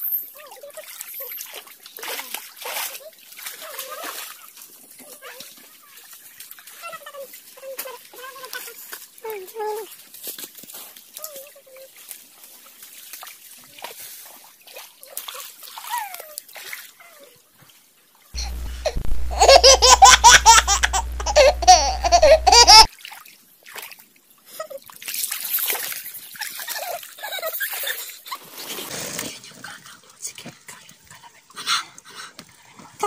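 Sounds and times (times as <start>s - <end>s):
high-pitched voices laughing: 18.4s - 22.9s
low hum: 18.4s - 22.9s.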